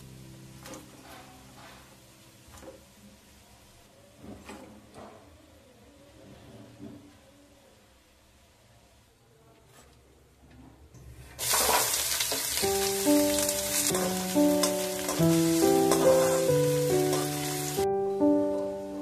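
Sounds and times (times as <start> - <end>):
onions sizzling in hot oil: 0.0 - 1.0, 11.4 - 19.0
soft piano music: 0.0 - 3.9, 12.4 - 19.0
spatula stirring in wok: 13.3 - 17.8.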